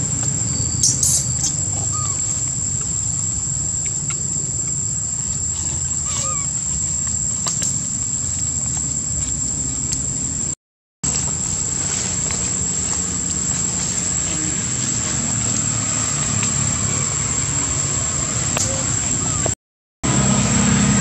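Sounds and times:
high-pitched insect drone: 0.0 - 19.6.

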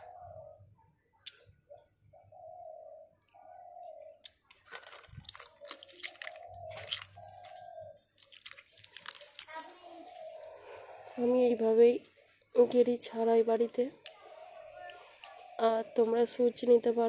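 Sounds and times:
bird cooing: 0.0 - 0.8, 1.6 - 4.2, 5.6 - 8.1, 9.8 - 11.2, 14.2 - 16.0
snail shells clattering: 4.3 - 9.6.

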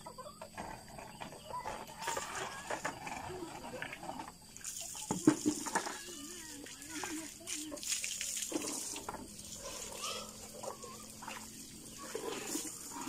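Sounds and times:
chicken clucking: 0.0 - 5.4
water from hose spraying: 4.5 - 13.0.

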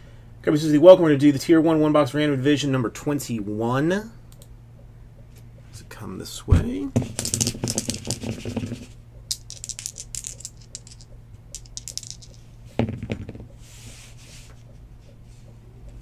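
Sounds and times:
dice rattling in a hand: 7.0 - 13.4
dice landing on a desk mat: 7.0 - 13.5.

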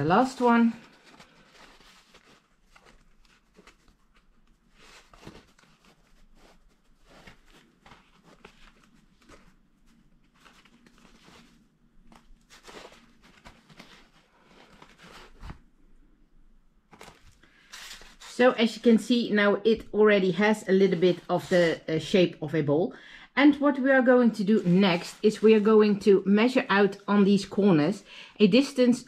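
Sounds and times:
waxed fabric crinkling: 0.0 - 19.3, 24.4 - 26.0.

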